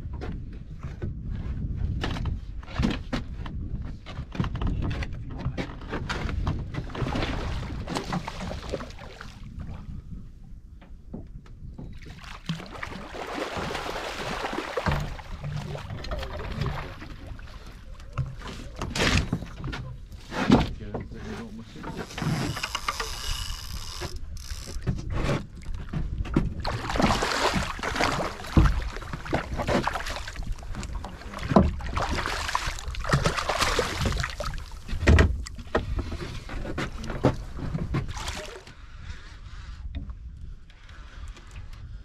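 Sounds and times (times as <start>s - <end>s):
heavy boat thumps: 10.8s - 22.9s, 24.7s - 38.4s
boat rushing on water: 11.8s - 38.8s.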